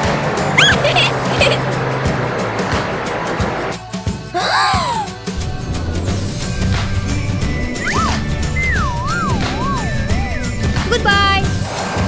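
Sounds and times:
background music: 0:00.0 - 0:12.0
warbling electronic beam tone: 0:05.5 - 0:11.0.

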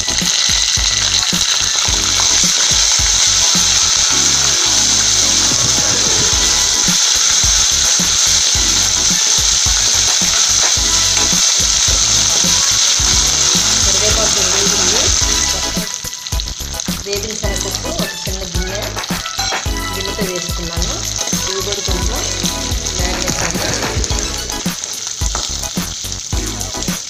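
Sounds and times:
leaves sizzling in hot oil: 0:00.0 - 0:27.0.

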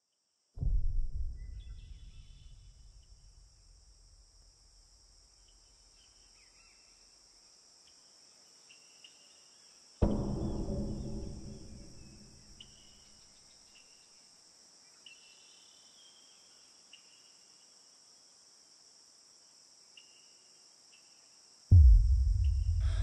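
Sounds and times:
high-pitched insect chorus: 0:01.3 - 0:23.0
ringing struck sound: 0:10.0 - 0:12.6.

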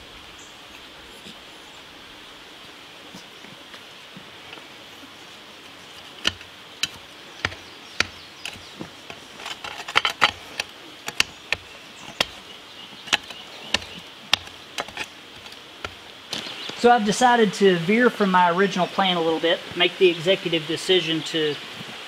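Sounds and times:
shovel scraping into rocky dirt: 0:05.8 - 0:12.4, 0:13.0 - 0:16.5.

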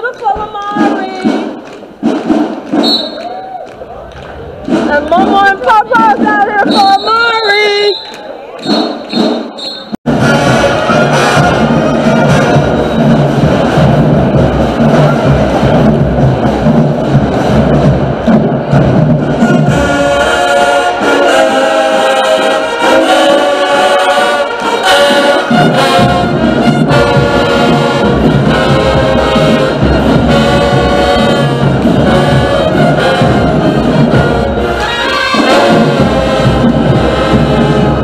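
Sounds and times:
marching band playing: 0:00.0 - 0:38.0
brass horn melody: 0:04.6 - 0:38.0.

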